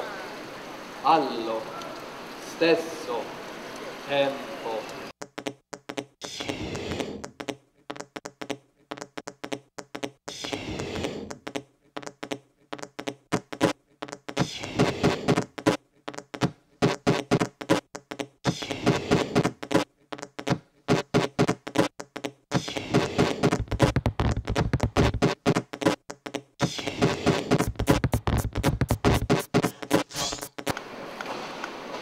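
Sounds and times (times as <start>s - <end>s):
glitchy electronic clicks: 19.3s - 30.8s.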